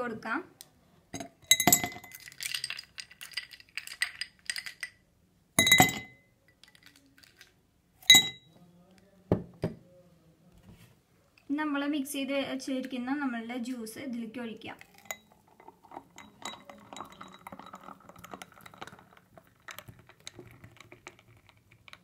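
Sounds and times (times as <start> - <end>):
ice cubes clinking in glass: 1.5 - 5.0, 5.6 - 7.5, 14.8 - 21.9.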